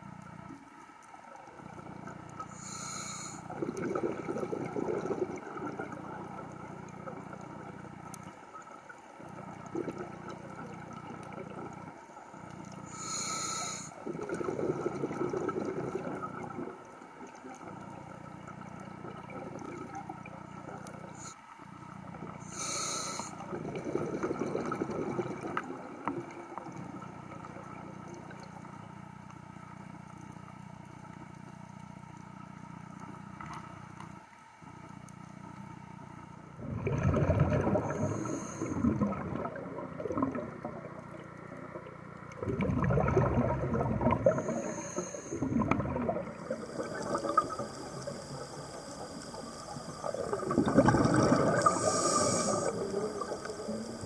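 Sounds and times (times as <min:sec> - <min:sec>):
steady low hum: 0:00.0 - 0:54.0
underwater bubbles gurgling: 0:00.0 - 0:54.0
short high hiss: 0:51.6 - 0:53.9.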